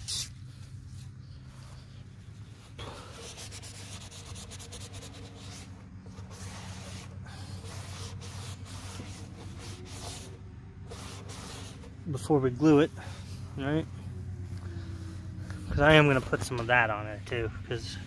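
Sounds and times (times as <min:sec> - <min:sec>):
steady low hum: 0:00.0 - 0:18.0
paper towel scrubbing plastic: 0:03.0 - 0:12.0.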